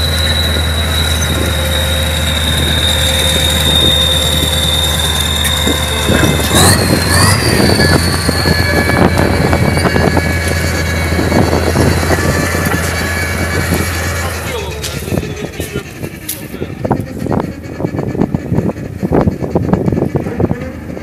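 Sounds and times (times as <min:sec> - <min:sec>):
high whine: 0:00.0 - 0:21.0
low engine note: 0:00.0 - 0:21.0
tracks clanking: 0:00.0 - 0:21.0.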